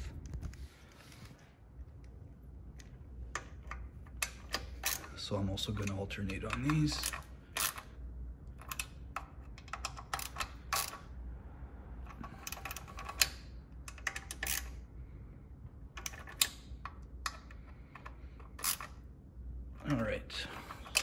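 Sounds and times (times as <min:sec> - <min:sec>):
hand ratchet clicking: 0:03.4 - 0:07.9, 0:08.6 - 0:11.0.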